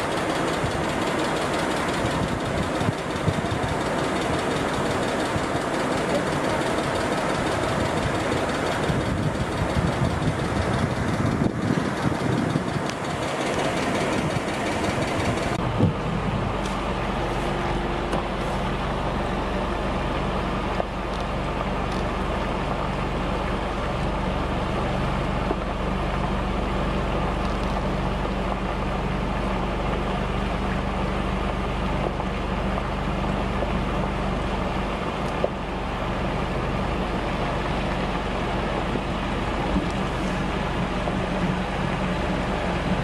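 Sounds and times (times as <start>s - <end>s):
vehicle engines humming: 0.0s - 43.0s.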